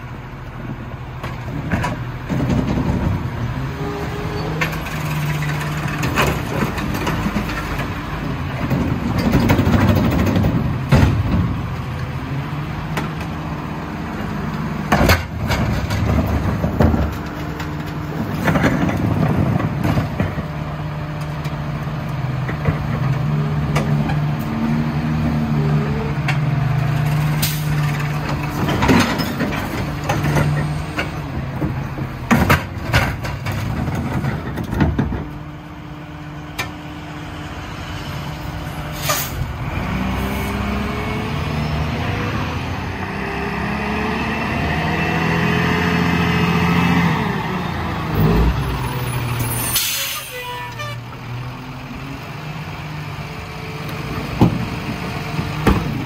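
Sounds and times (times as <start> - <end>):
garbage truck engine drone: 0.0 - 56.0
loud bangs and clunks: 8.6 - 11.9, 14.8 - 20.6, 26.3 - 35.4, 54.2 - 56.0.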